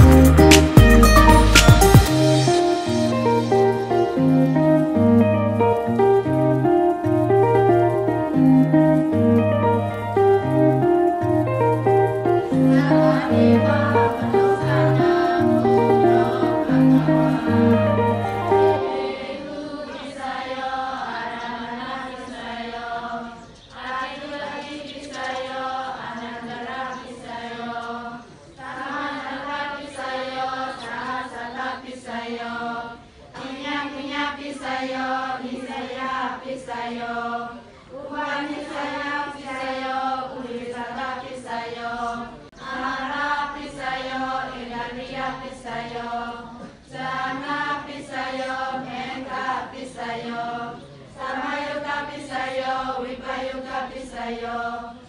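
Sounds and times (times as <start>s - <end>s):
girls chanting in unison: 18.8s - 55.0s.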